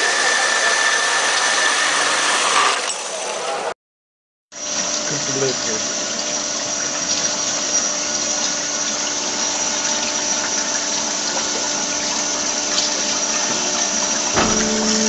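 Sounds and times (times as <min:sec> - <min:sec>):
band saw running: 0:14.3 - 0:15.0
knock: 0:14.4 - 0:15.0.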